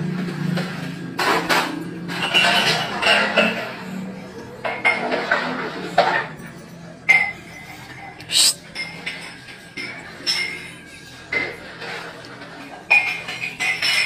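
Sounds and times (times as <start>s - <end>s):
ceramic dishes clinking: 1.2s - 14.0s.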